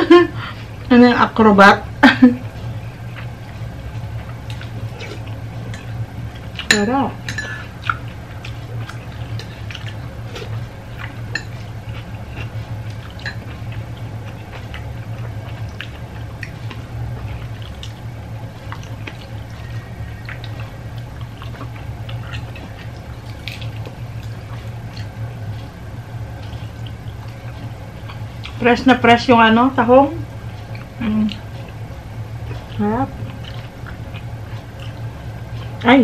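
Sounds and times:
steady low hum: 0.0 - 36.0
wet chewing: 2.4 - 36.0
lip smacks: 12.4 - 25.8.

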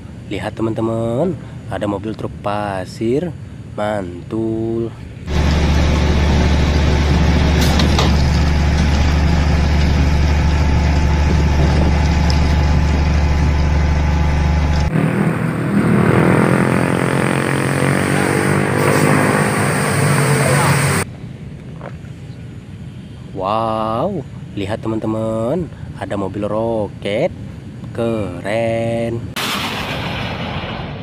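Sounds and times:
diesel truck engine droning: 5.3 - 21.0.

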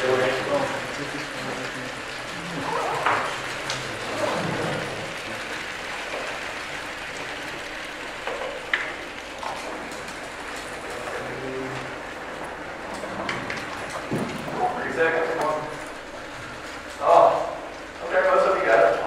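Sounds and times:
room hum and hiss: 0.0 - 19.0.

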